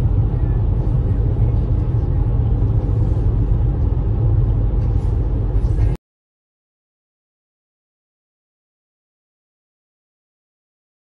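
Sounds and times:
vehicle engine and road noise: 0:00.0 - 0:06.0.

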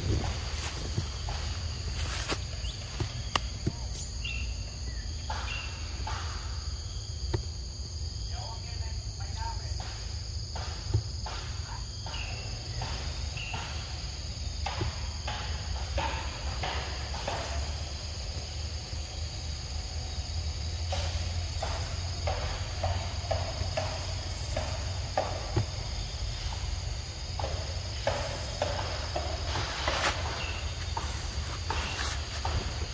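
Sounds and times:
rustles in grass and leaves: 0:00.0 - 0:05.0, 0:27.8 - 0:32.9
insects buzzing: 0:00.0 - 0:32.9.

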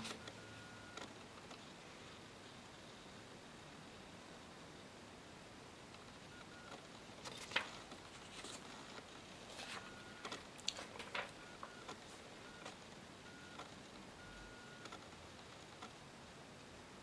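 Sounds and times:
faint room hiss: 0:00.0 - 0:17.0
paper cards clicking and rustling: 0:07.2 - 0:12.0.

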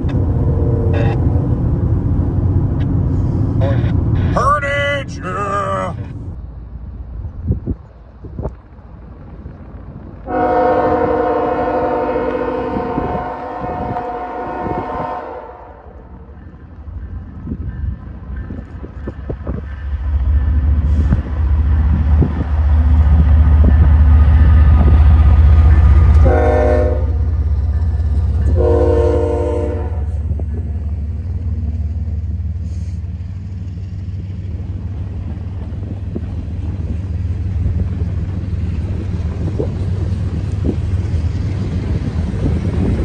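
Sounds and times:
locomotives rumbling past: 0:00.0 - 0:15.2, 0:15.8 - 0:43.0
freight cars rumbling: 0:00.0 - 0:43.0
train horn blasts: 0:10.3 - 0:16.0, 0:26.1 - 0:27.4, 0:28.4 - 0:30.2.

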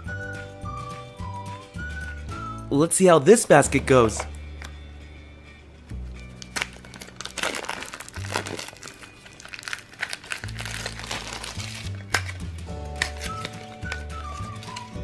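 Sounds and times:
background music with bass line: 0:00.0 - 0:02.8
plastic wrapper crinkling: 0:06.3 - 0:15.0.

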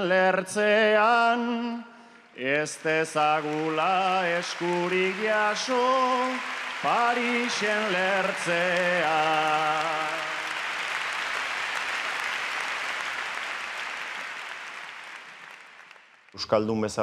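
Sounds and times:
man singing unaccompanied: 0:00.0 - 0:10.4
crowd applause: 0:02.4 - 0:16.4.

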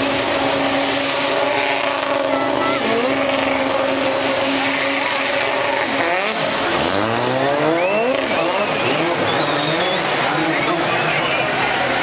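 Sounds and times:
racing car engine revving: 0:00.0 - 0:12.0
tyre squeal: 0:07.3 - 0:10.3.

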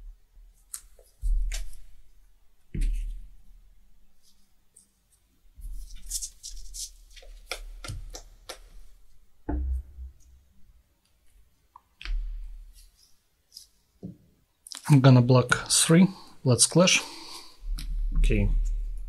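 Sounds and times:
cards clicking and slapping: 0:06.0 - 0:08.7.

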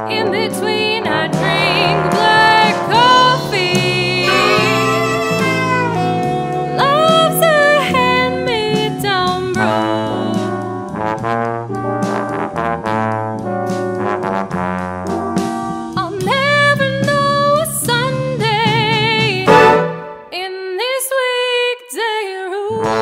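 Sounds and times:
jazz big band playing: 0:00.0 - 0:20.3
woman singing with vibrato: 0:00.2 - 0:10.4.

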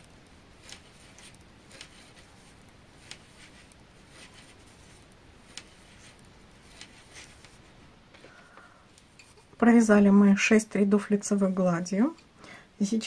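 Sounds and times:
knitting needles clicking: 0:00.0 - 0:07.6.

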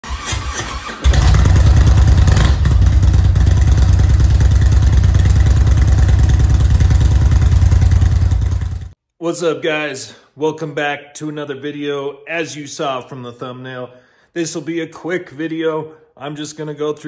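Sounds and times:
motorcycle engine rumbling: 0:01.0 - 0:09.0.

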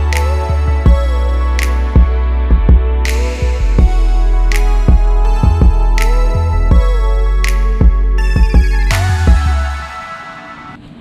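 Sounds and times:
music with bass and drum beat: 0:00.0 - 0:09.8.

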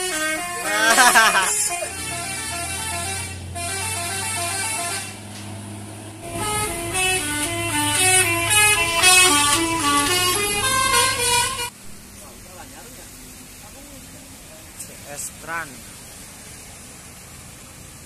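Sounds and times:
multi-tone bus horn melody: 0:00.0 - 0:11.8
bus engine humming: 0:00.0 - 0:18.0.

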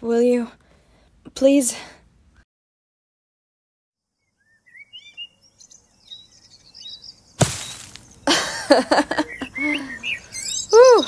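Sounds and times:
birdsong chirps: 0:04.0 - 0:11.0.

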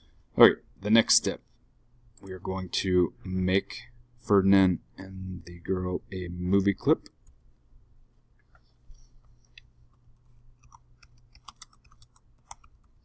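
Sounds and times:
low steady hum: 0:00.0 - 0:13.0
keyboard typing: 0:10.2 - 0:13.0.

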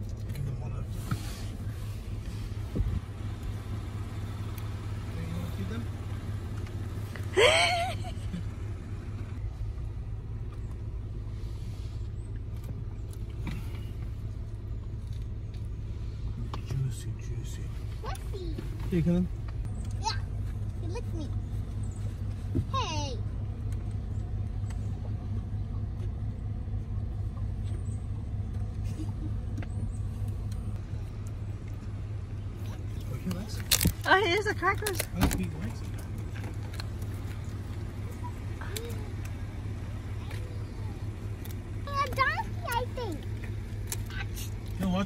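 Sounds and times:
vehicle engine idling: 0:00.0 - 0:45.0
faint clicks and rustles: 0:17.7 - 0:45.0.

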